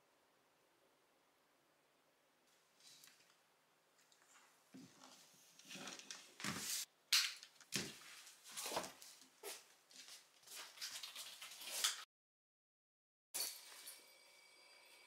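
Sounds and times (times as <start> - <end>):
paws scuffling on a wooden floor: 7.8 - 12.0.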